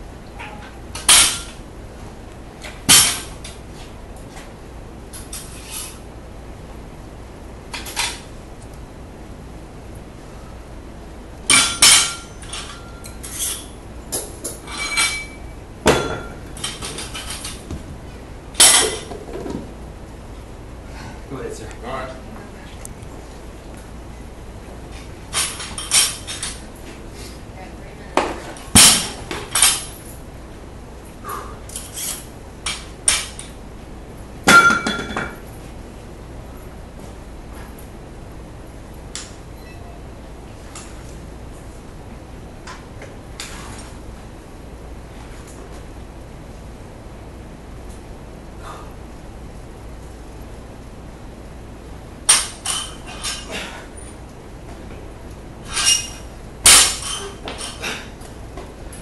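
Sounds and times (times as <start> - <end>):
weight plates knocking and clinking: 34.5 - 35.4.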